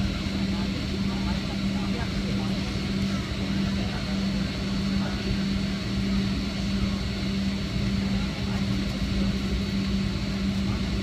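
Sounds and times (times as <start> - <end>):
jet engines humming: 0.0 - 11.0
rumble of airflow and wheels: 0.0 - 11.0.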